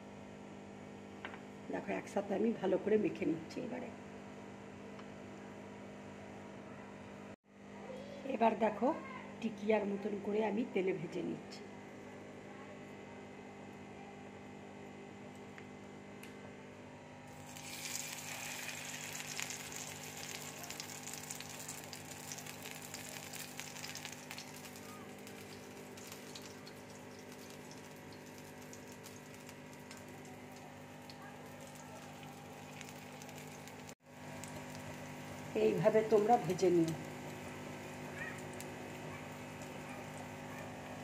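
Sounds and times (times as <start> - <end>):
patties sizzling in hot oil: 17.3 - 40.5.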